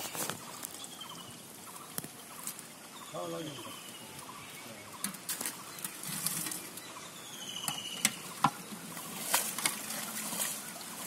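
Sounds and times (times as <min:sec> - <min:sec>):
water splashing and sloshing: 0:04.0 - 0:11.0.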